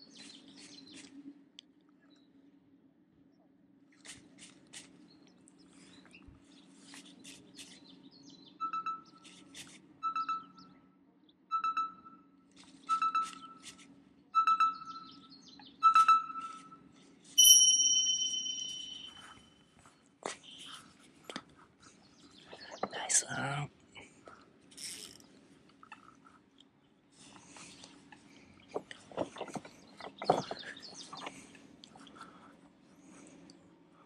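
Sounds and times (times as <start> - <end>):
short electronic beeps: 8.6 - 9.2, 10.0 - 10.7, 11.5 - 12.2, 12.8 - 13.6, 14.4 - 15.2, 15.8 - 16.8, 17.4 - 19.4
bright chime ringing: 17.4 - 19.4.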